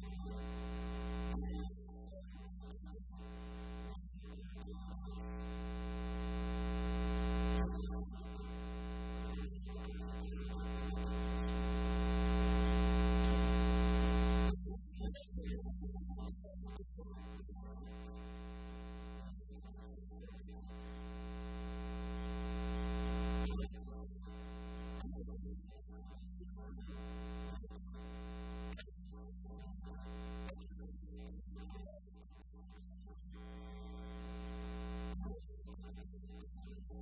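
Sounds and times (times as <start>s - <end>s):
electrical mains hum: 0.0s - 14.6s, 17.0s - 19.5s, 20.5s - 25.4s, 26.8s - 28.8s, 33.3s - 35.3s.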